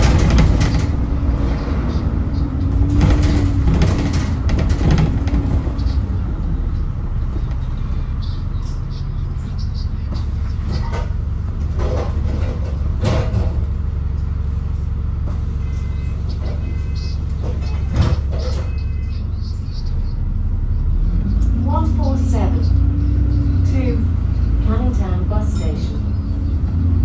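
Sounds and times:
knocks and rattles: 0:00.0 - 0:06.3, 0:10.1 - 0:13.8
bus engine and road rumble: 0:00.0 - 0:27.0.

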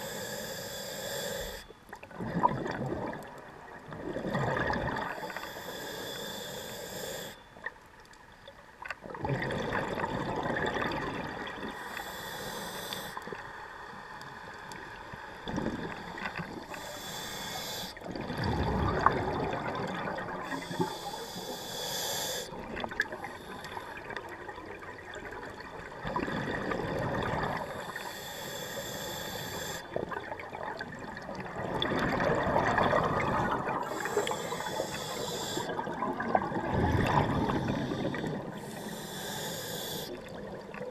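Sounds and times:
regulator inhale hiss: 0:00.0 - 0:01.8, 0:05.0 - 0:07.5, 0:11.7 - 0:18.1, 0:20.4 - 0:24.2, 0:27.6 - 0:30.0, 0:33.7 - 0:35.9, 0:37.3 - 0:40.4
exhaled air bubbling: 0:02.0 - 0:05.8, 0:09.0 - 0:13.5, 0:14.7 - 0:28.1, 0:28.7 - 0:40.9.

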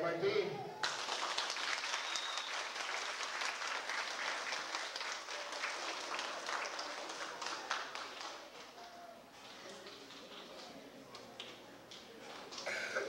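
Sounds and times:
audience applauding: 0:00.8 - 0:09.6.

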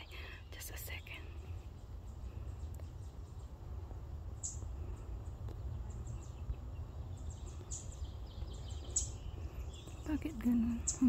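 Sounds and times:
bird chirps: 0:00.0 - 0:11.0
steady low rumble: 0:00.0 - 0:11.0.

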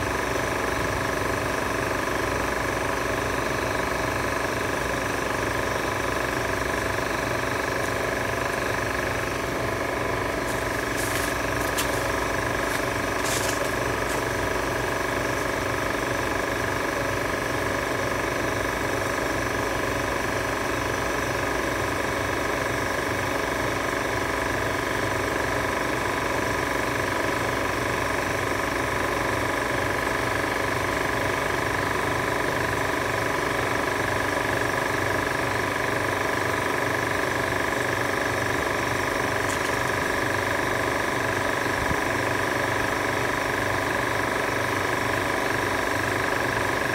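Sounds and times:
mechanical motor drone: 0:04.7 - 0:17.4.

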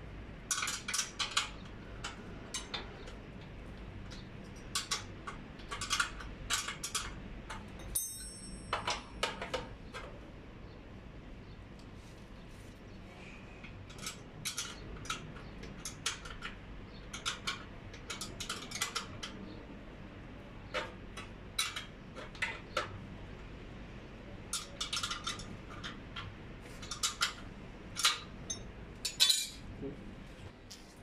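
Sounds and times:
spanner clicking on metal bolts: 0:00.5 - 0:03.5, 0:04.1 - 0:10.1, 0:13.8 - 0:19.4, 0:24.5 - 0:29.6.

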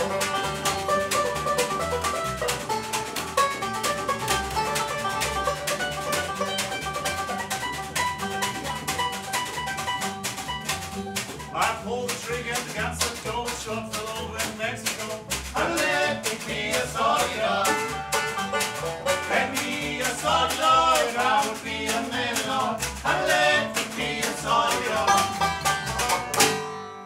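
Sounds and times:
banjo picking: 0:00.0 - 0:27.0
upright bass: 0:00.0 - 0:27.0.

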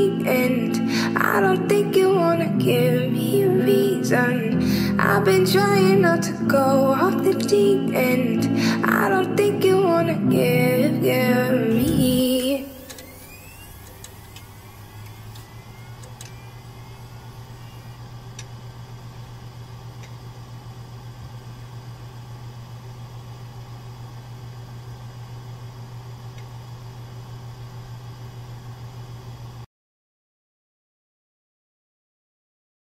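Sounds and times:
low droning hum: 0:09.0 - 0:26.8
faint rising chirps: 0:11.9 - 0:18.7.

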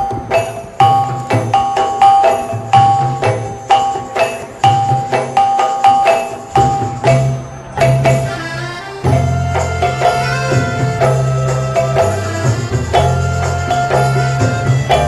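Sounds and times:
bell-like notes: 0:00.0 - 0:15.0
steady beat: 0:00.0 - 0:15.0
bass line: 0:06.6 - 0:15.0.

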